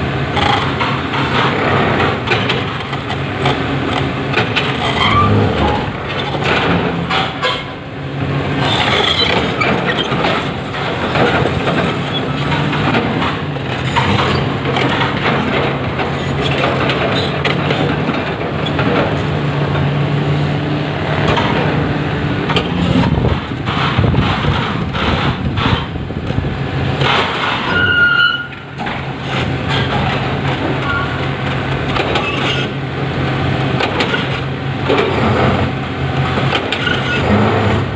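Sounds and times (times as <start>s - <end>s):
excavator diesel engine running: 0.0s - 37.9s.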